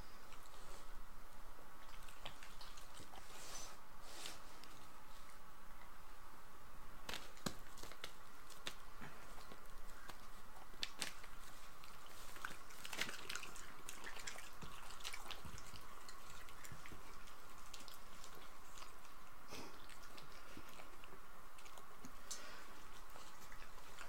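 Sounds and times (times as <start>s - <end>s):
dogs chewing meat: 1.8s - 3.6s, 7.1s - 24.0s.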